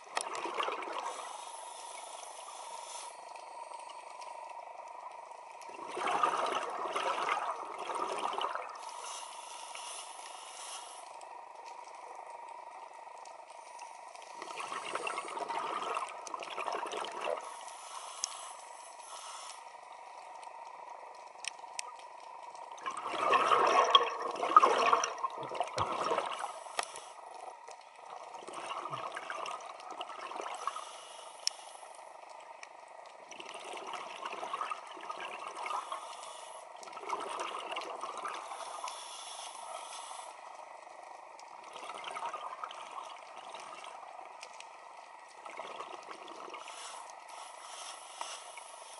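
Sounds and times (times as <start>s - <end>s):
regulator bubbling exhalation: 22.8s - 26.4s.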